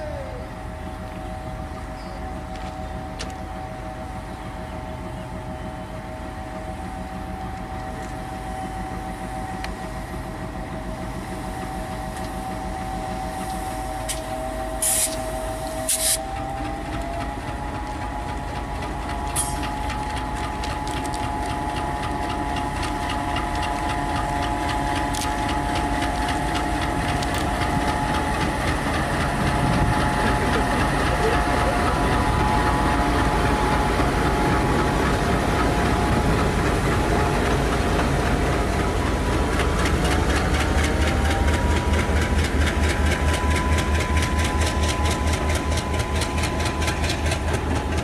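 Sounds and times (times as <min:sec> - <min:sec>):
diesel train engine: 0:00.0 - 0:48.0
wheels clicking over rail joints: 0:13.4 - 0:48.0.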